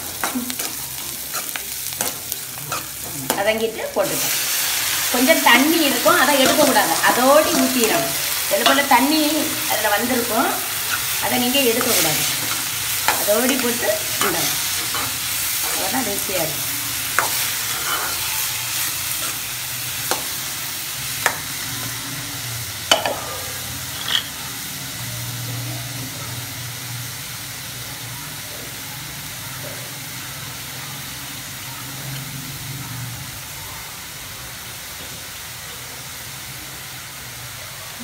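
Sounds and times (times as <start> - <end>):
food sizzling in a pan: 0.0 - 38.0
metal spoon scraping a pan: 17.1 - 19.4, 22.9 - 24.4.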